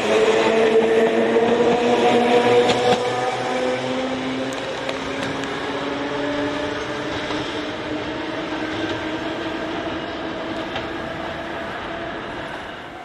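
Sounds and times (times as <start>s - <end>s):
train running noise: 0.0s - 13.0s.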